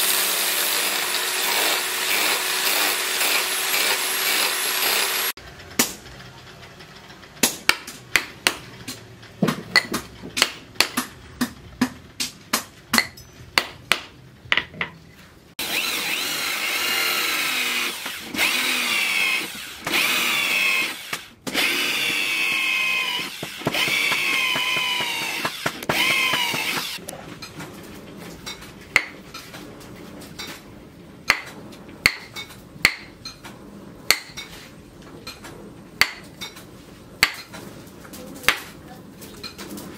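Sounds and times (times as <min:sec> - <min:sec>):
cordless drill boring into wood: 0:00.0 - 0:05.4, 0:15.6 - 0:27.0.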